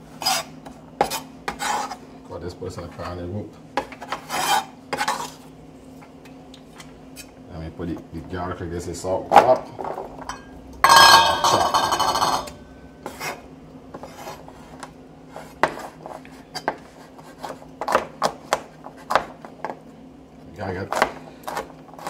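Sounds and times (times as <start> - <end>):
knife chopping on wooden board: 15.5 - 16.0, 16.6 - 19.8.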